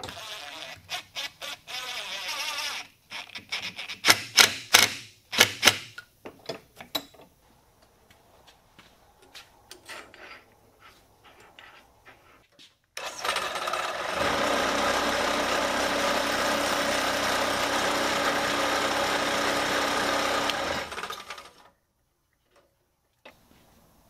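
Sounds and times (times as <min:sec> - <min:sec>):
drill press running: 0:13.0 - 0:21.6.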